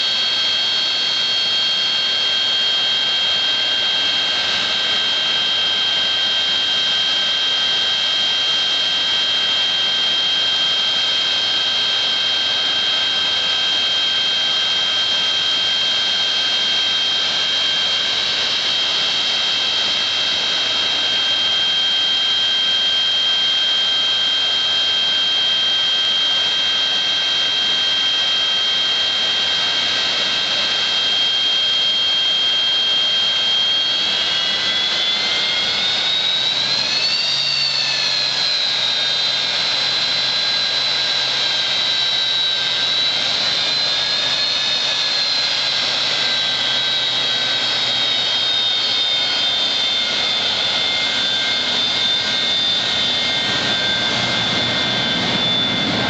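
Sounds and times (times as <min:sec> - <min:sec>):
jet engines idling: 0:00.0 - 0:56.0.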